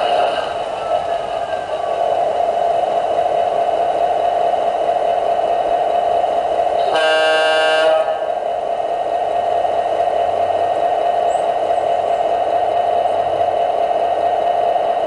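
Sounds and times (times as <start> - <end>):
model train diesel engine sound: 0.0 - 15.0
model train horn chord: 6.8 - 8.3.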